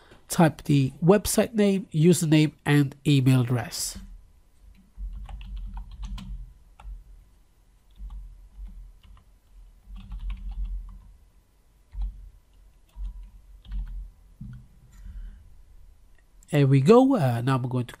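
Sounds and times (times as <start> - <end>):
typing on computer keyboard: 4.8 - 7.0, 7.9 - 9.3, 9.9 - 11.1, 11.9 - 14.0.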